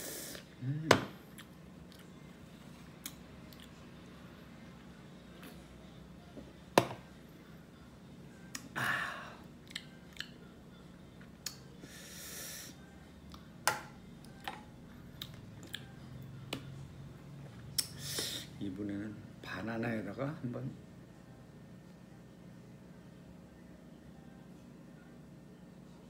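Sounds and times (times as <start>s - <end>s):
knock on table: 6.8s - 7.0s.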